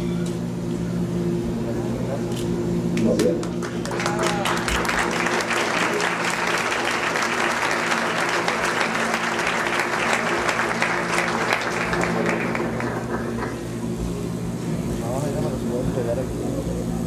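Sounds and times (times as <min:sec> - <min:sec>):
audience applauding: 0:03.4 - 0:13.8.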